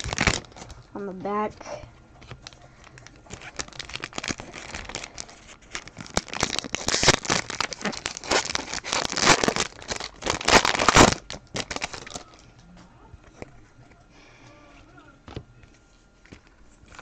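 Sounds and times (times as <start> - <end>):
foil wrapper tearing and crinkling: 0.0 - 0.9, 2.2 - 12.4.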